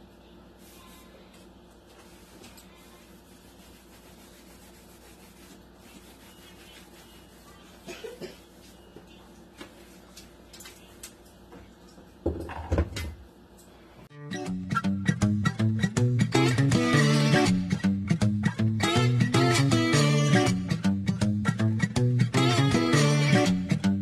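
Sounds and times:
guitar music: 14.1 - 24.0.

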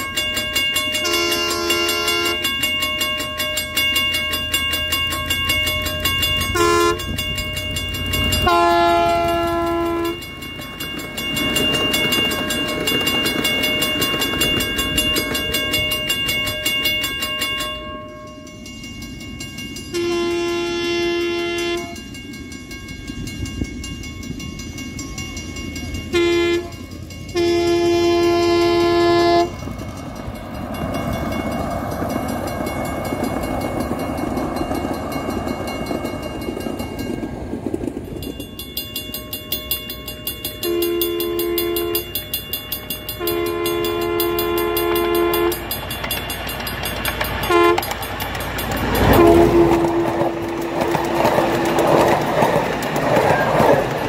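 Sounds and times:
train wheels clacking on rails: 0.0 - 54.0
train horn blasts: 1.0 - 2.5, 6.5 - 7.2, 8.4 - 10.2, 19.9 - 22.0, 26.1 - 29.6, 40.6 - 42.2, 43.2 - 45.7, 47.4 - 48.0, 49.0 - 50.6.

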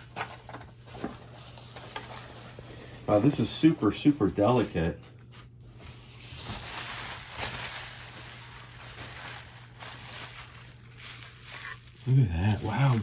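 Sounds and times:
plastic packaging crinkling: 4.3 - 13.0.

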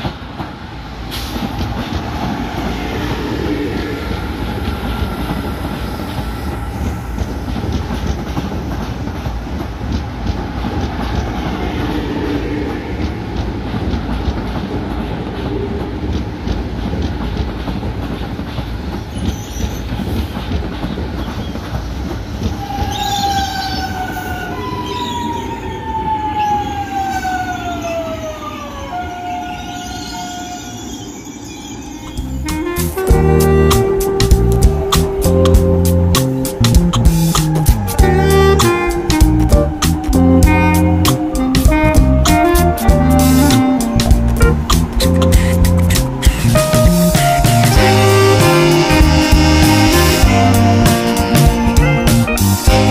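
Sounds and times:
train wheels rumbling on track: 0.0 - 28.9, 31.7 - 52.9
train traction motors whining: 29.0 - 52.9.

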